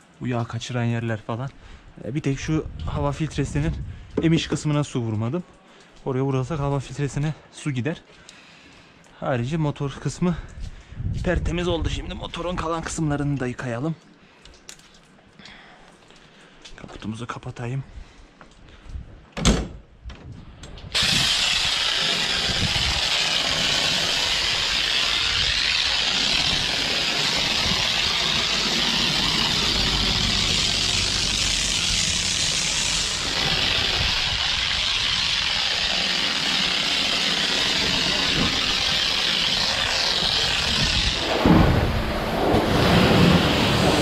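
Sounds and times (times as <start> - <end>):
hood shutting bang: 20.9 - 44.0
pressure washer spraying: 21.0 - 44.0.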